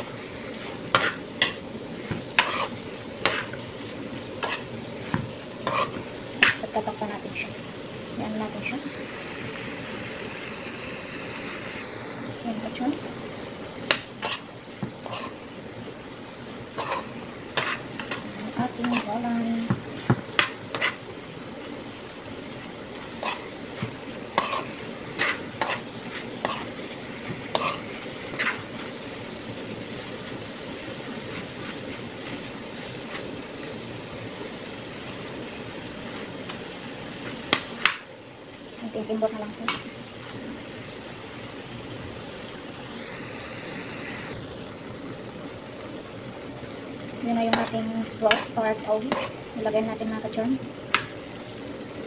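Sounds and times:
food sizzling in a pan: 0:00.0 - 0:52.0
metal spatula clacking on pan: 0:47.5 - 0:48.5.

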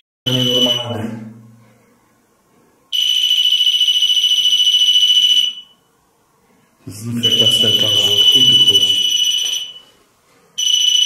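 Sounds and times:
high-pitched buzzer alarm tone: 0:00.3 - 0:01.0, 0:02.9 - 0:05.8, 0:07.2 - 0:10.0, 0:10.6 - 0:11.0.

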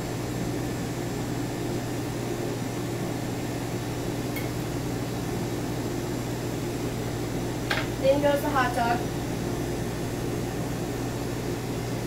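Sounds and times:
kitchen machinery humming: 0:00.0 - 0:12.0.

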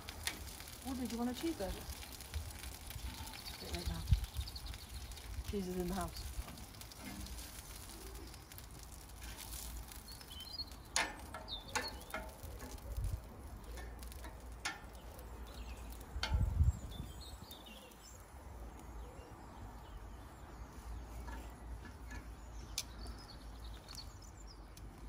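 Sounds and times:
metal tongs clicking on grill: 0:00.0 - 0:03.9, 0:10.7 - 0:16.6
birds chirping: 0:00.5 - 0:25.0.

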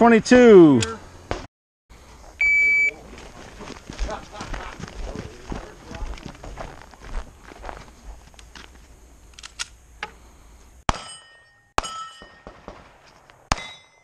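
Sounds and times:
steel plate target ringing: 0:10.9 - 0:12.7, 0:13.5 - 0:14.0
pistol shots: 0:11.8 - 0:13.9.

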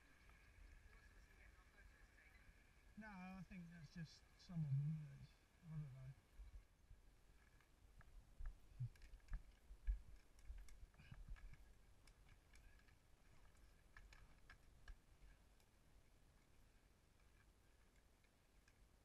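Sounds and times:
trike rolling with faint clicks: 0:06.2 - 0:19.0.

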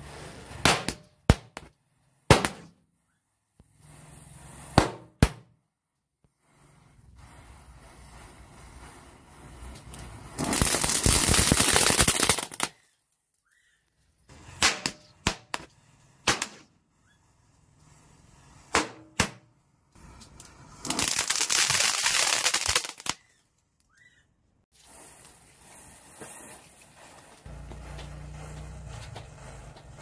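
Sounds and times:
firecrackers popping: 0:00.5 - 0:01.7, 0:02.3 - 0:02.8, 0:04.7 - 0:05.4, 0:07.2 - 0:12.9, 0:14.4 - 0:16.7, 0:18.7 - 0:23.4, 0:24.8 - 0:30.0
sharp firecracker bangs: 0:00.6 - 0:01.6.

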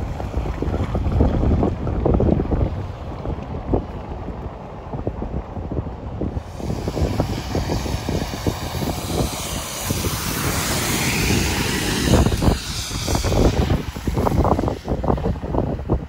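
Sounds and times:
wind buffeting microphone: 0:00.0 - 0:16.0
bus driving past: 0:06.4 - 0:15.9.

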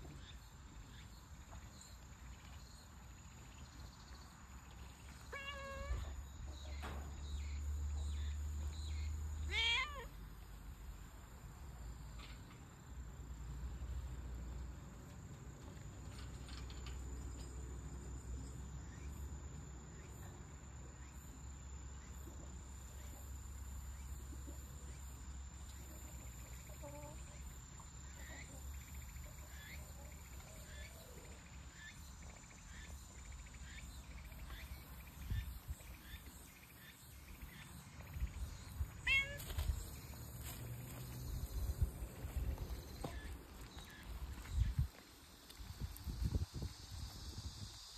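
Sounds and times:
cat meowing: 0:05.3 - 0:06.2, 0:09.5 - 0:10.1, 0:39.0 - 0:39.5.

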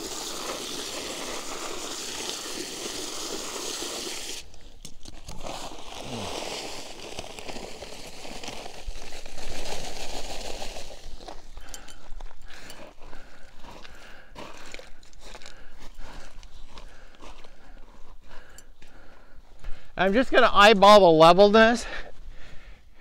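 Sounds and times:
dry cement pouring: 0:00.0 - 0:12.0
bag rustling and crinkling: 0:04.6 - 0:13.8.

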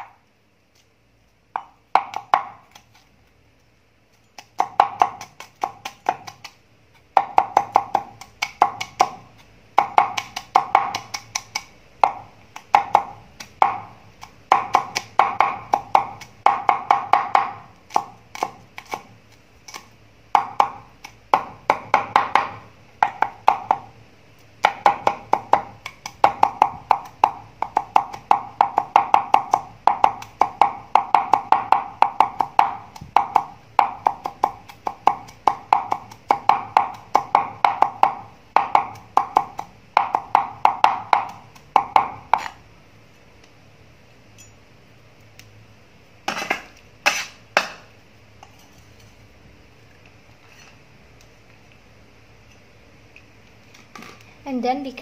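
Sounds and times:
cleaver chopping on wooden board: 0:04.4 - 0:06.5, 0:09.8 - 0:19.1, 0:19.7 - 0:23.9, 0:24.6 - 0:42.6, 0:46.3 - 0:47.9.

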